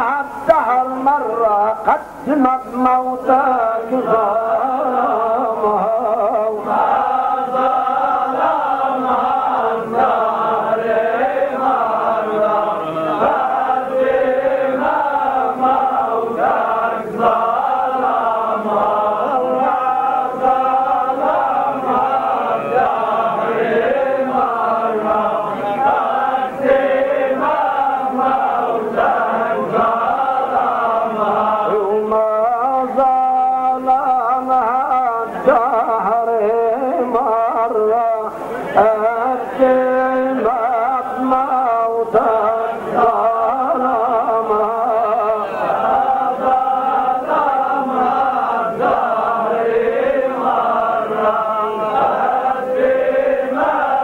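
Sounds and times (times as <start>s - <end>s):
men chanting together: 3.0s - 54.0s.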